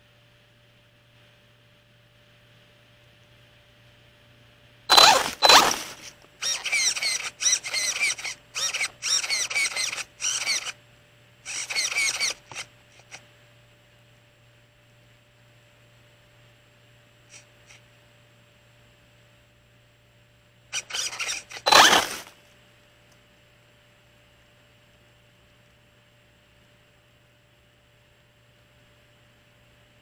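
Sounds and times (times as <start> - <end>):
faint steady whine: 0.0 - 30.0
electric motor whirring bursts: 4.9 - 10.8, 11.5 - 13.2, 20.8 - 22.3.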